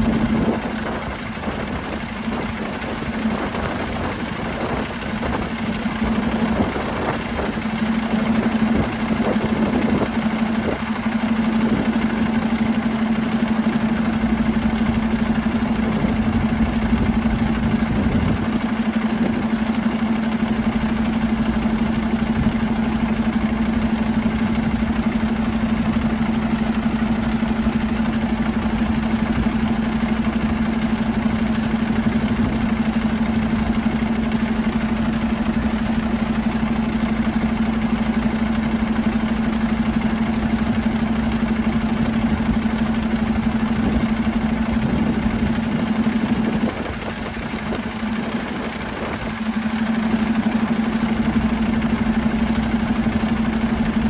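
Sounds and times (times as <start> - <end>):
diesel engine idling: 0.0 - 54.0.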